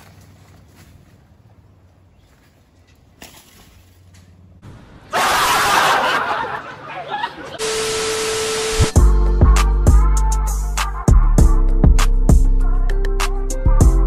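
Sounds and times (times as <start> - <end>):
loud laughter: 5.1 - 7.6
held tone: 7.6 - 9.0
steady hiss: 7.6 - 9.0.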